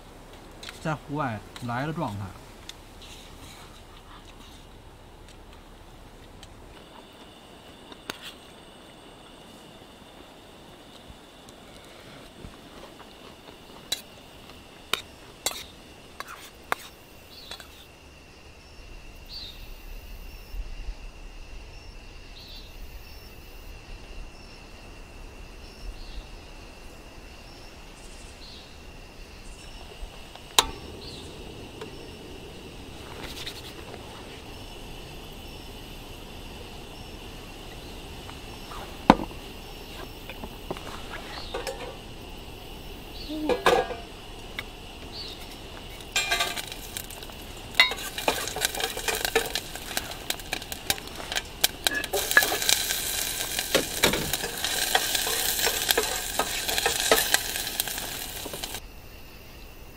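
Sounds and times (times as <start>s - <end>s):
high insect drone: 0.0s - 59.9s
camp cookware knocks: 30.6s - 30.9s, 39.0s - 39.4s, 40.3s - 42.0s, 43.4s - 44.2s, 46.1s - 47.2s, 47.8s - 58.8s.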